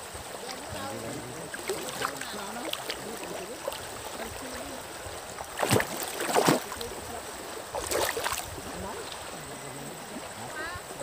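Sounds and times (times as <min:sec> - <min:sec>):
stream running over rocks: 0:00.0 - 0:11.0
loud water splashes: 0:00.7 - 0:09.4.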